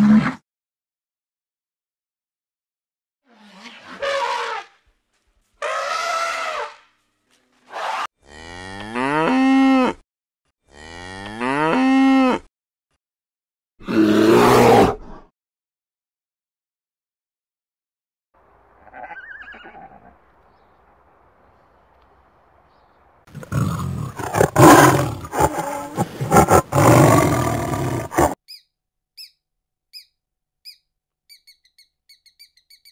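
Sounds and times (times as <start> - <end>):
cow mooing: 8.2 - 10.0, 10.7 - 12.5
tiger roaring and growling: 13.8 - 15.3, 23.3 - 28.4
high falling chirp: 28.5 - 32.9.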